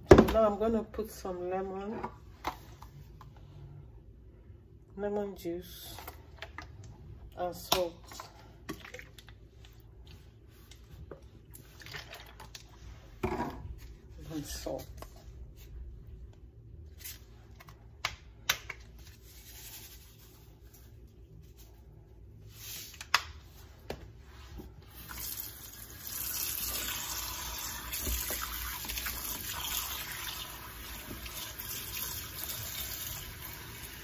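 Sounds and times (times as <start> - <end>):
tap water splashing into tub: 27.8 - 32.0.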